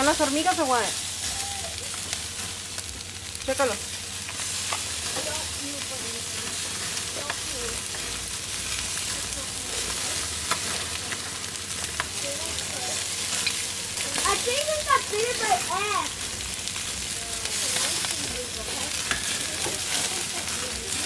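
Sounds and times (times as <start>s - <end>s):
chicken sizzling on a grill: 0.0s - 21.0s
metal tongs clicking on grate: 19.0s - 20.1s.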